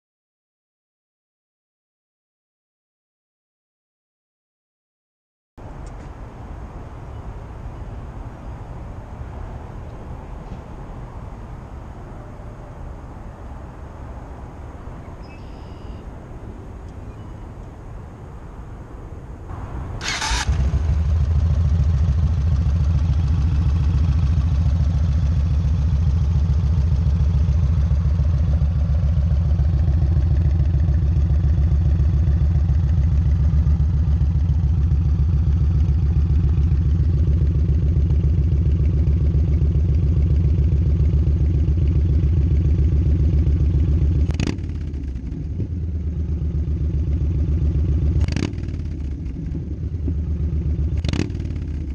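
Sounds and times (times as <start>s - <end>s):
motorcycle engine idling: 19.5s - 51.9s
starter motor whir: 20.0s - 21.0s.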